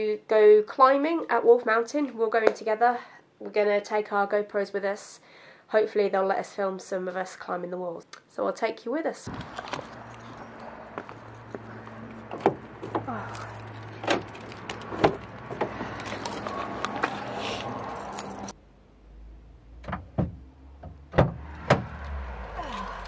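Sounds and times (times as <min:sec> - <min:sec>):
camera handled and set down: 0:09.3 - 0:10.4
car keys jangling: 0:09.3 - 0:18.6.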